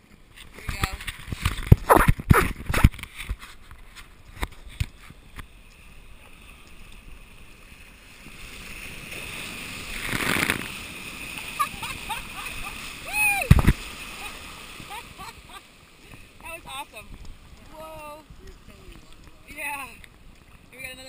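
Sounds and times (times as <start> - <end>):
whitewater surging: 4.7 - 21.0
ocean wave breaking: 5.9 - 20.8.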